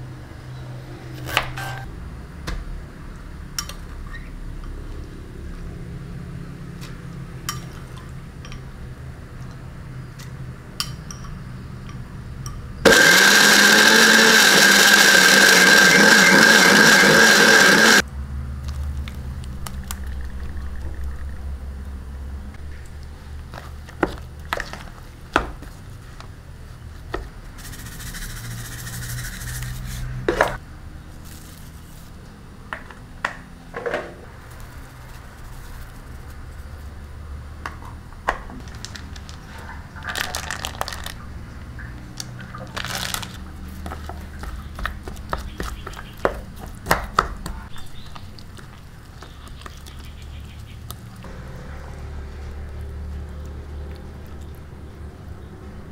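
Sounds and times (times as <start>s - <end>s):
electric blender running: 12.8s - 18.0s.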